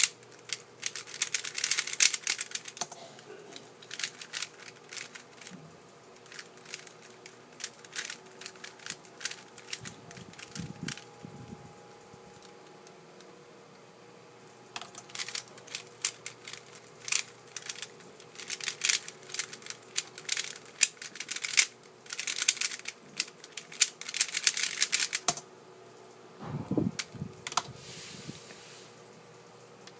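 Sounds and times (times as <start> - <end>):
plastic puzzle cube clicking: 0.0 - 3.0, 3.9 - 5.5, 6.2 - 11.0, 14.9 - 25.4.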